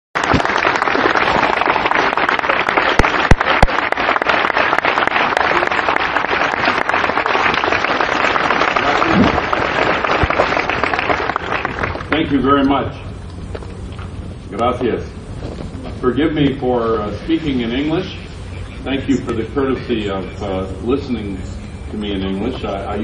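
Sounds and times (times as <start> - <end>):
audience applauding: 0.2 - 12.2.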